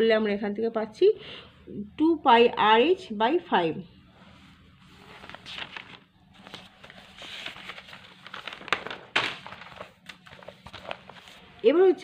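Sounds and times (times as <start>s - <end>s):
paper rustling and crackling: 4.8s - 11.6s.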